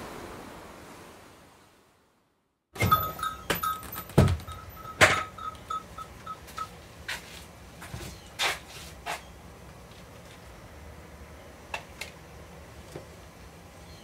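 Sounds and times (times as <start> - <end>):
door knocks and clatters: 2.8 - 5.5.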